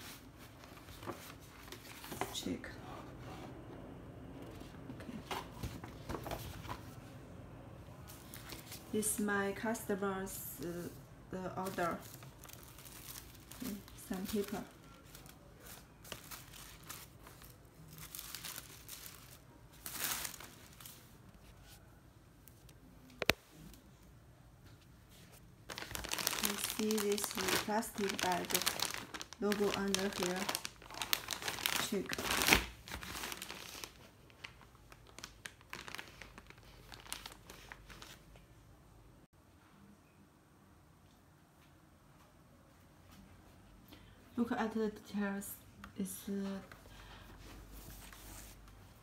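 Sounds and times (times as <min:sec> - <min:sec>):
plastic bag crinkling: 0:11.5 - 0:21.0, 0:25.7 - 0:38.2
tissue paper rustling: 0:11.5 - 0:21.8, 0:25.1 - 0:38.2, 0:47.4 - 0:49.0.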